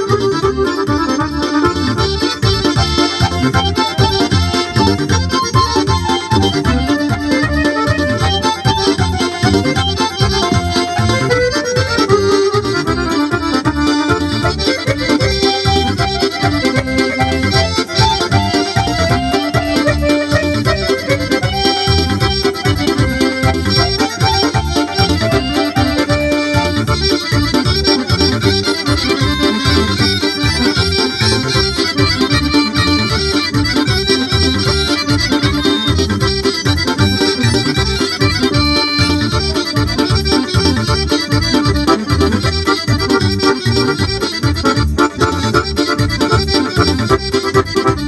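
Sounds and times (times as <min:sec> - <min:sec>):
accordion playing a melody: 0:00.0 - 0:48.0
keyboard backing with steady beat: 0:00.0 - 0:48.0.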